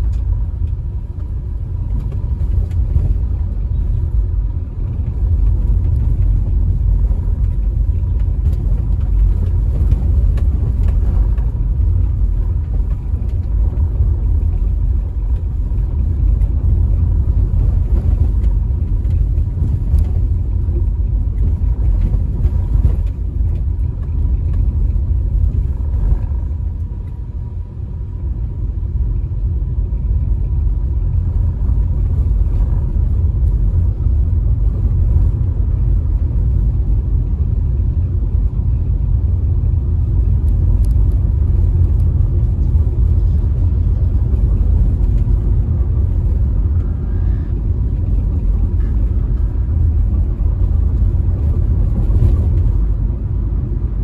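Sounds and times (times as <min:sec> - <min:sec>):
car cabin road rumble: 0:00.0 - 0:54.0.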